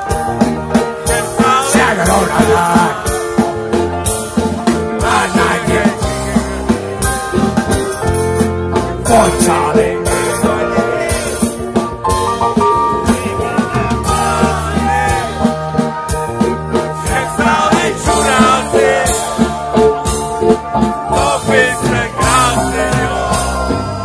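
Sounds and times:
drum kit beat: 0:00.0 - 0:24.0
live rock band playing: 0:00.0 - 0:24.0
person singing: 0:21.1 - 0:24.0.

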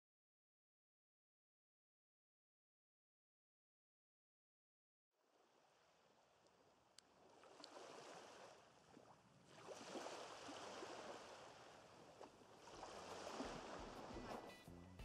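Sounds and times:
faint small waves washing ashore: 0:05.3 - 0:14.6.

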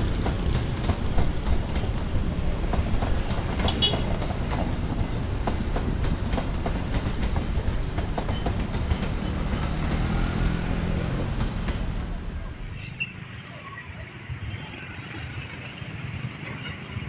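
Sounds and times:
wheels clicking over rail joints: 0:00.0 - 0:12.6
passenger train rolling past: 0:00.0 - 0:17.0.

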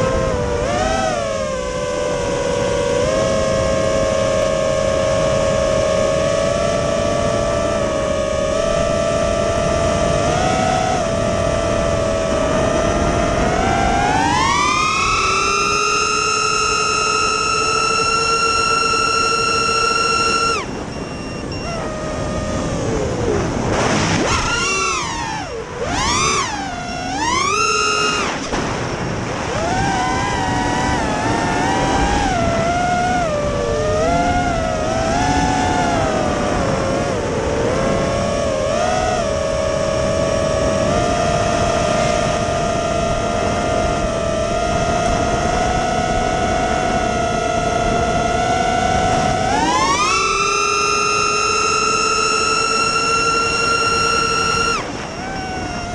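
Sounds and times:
quadcopter motors whining: 0:00.0 - 0:55.9
rushing air: 0:22.1 - 0:25.8.

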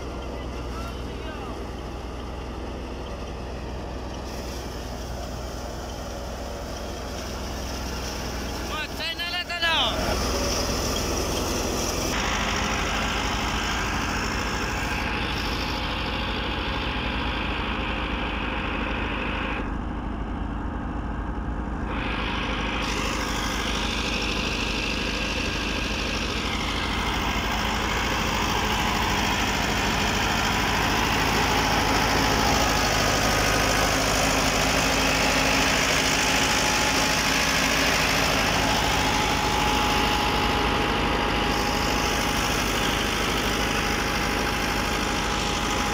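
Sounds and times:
tractor diesel engine running: 0:00.0 - 0:45.9
thresher rushing noise: 0:21.7 - 0:45.9.

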